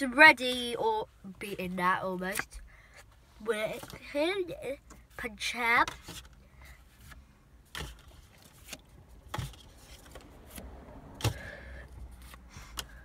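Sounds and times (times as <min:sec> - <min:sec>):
cards rustling and clicking: 0:04.9 - 0:11.4.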